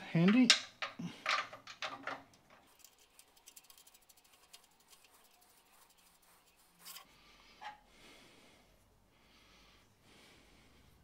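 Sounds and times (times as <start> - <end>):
metal clicks and clinks: 0.3 - 2.7.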